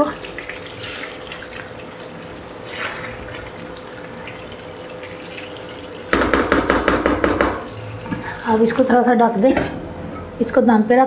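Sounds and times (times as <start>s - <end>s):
chicken sizzling in a pan: 0.0s - 6.7s.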